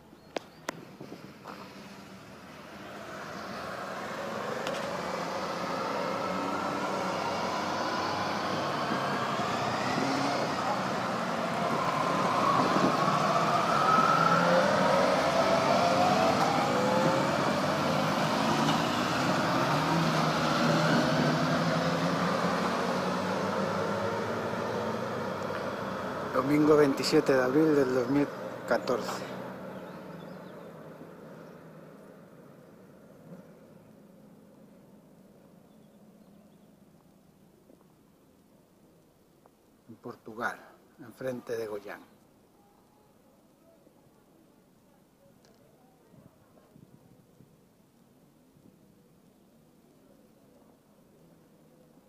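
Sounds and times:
motorcycles riding past: 0:01.9 - 0:31.1.

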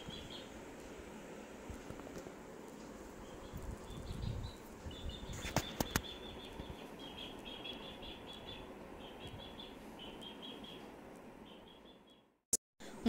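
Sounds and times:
high chirping: 0:00.0 - 0:00.6, 0:03.2 - 0:12.3.

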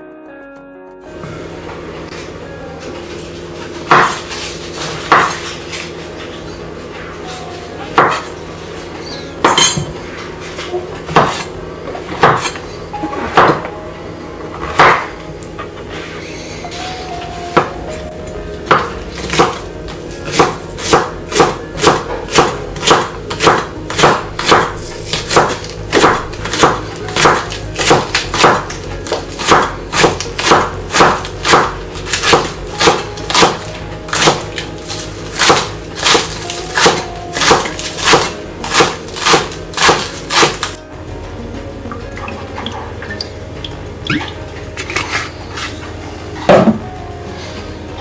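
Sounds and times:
knife chopping on wooden board: 0:03.9 - 0:04.2, 0:05.0 - 0:05.4, 0:08.0 - 0:08.3, 0:11.1 - 0:11.5, 0:12.1 - 0:12.6, 0:13.4 - 0:13.6, 0:14.8 - 0:15.1, 0:18.7 - 0:19.6, 0:20.3 - 0:40.8.

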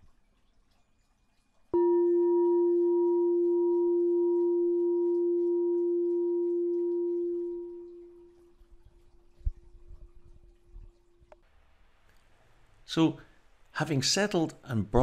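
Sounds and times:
singing bowl ringing: 0:01.8 - 0:08.6.

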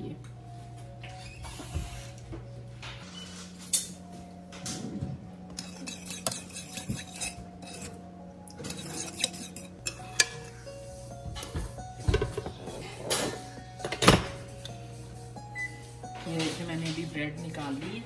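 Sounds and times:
metal spoon scraping saucepan: 0:05.5 - 0:10.6.

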